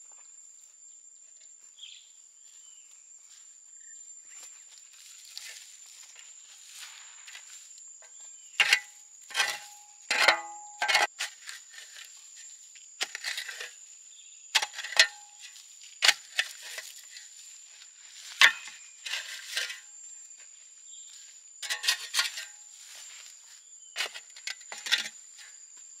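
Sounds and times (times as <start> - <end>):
spade digging into compost: 8.6 - 13.8, 14.6 - 17.4, 18.2 - 19.9, 21.6 - 23.1, 24.0 - 25.6.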